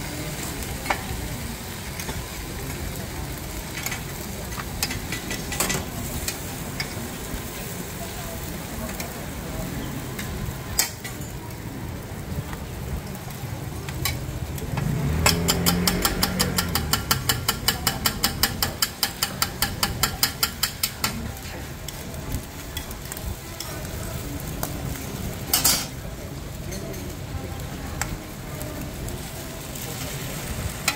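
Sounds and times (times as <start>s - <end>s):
pancakes sizzling on griddle: 0.0s - 30.9s
metal spatula clacking on griddle: 3.7s - 7.0s, 10.7s - 11.3s, 13.9s - 22.1s, 22.8s - 23.8s, 25.5s - 26.0s.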